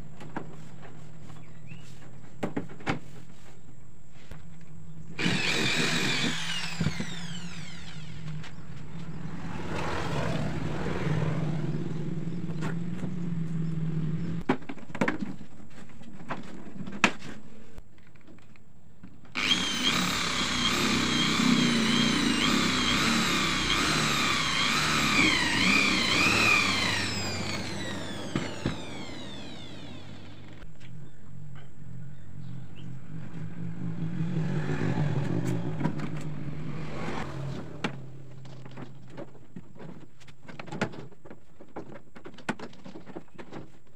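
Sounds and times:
power tool cutting plywood: 5.2s - 8.6s, 19.3s - 30.6s.

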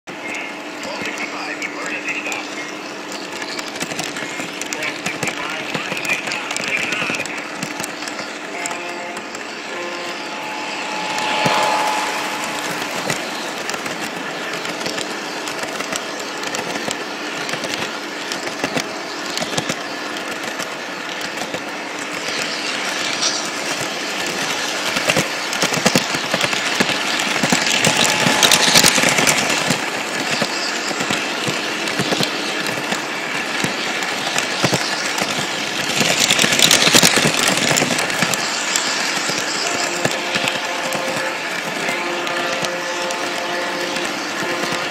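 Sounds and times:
faint hum: 0.2s - 22.9s
toy train wheels rattling on rails: 0.2s - 44.9s.

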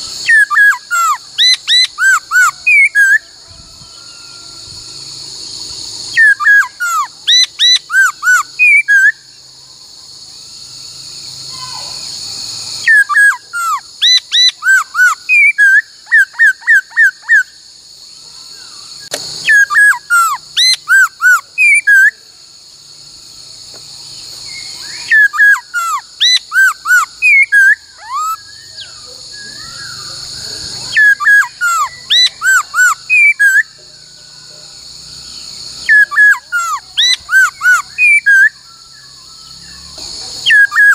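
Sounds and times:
bird whistling loud clear notes: 0.0s - 4.7s, 6.1s - 9.4s, 12.8s - 17.5s, 19.0s - 22.2s, 24.4s - 33.8s, 35.8s - 40.9s
steady high hiss: 0.0s - 40.9s.

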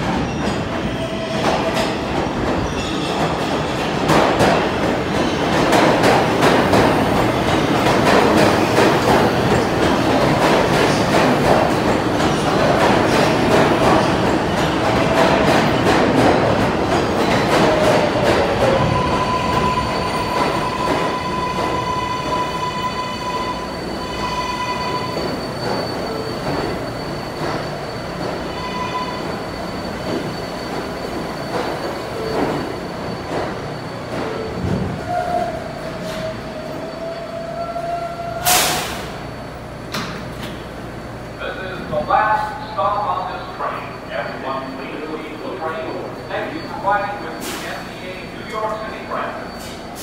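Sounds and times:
subway train rumble: 0.0s - 50.0s
train wheel and brake squeal: 2.6s - 3.9s, 7.3s - 40.6s, 41.4s - 50.0s
train whine: 4.5s - 50.0s.

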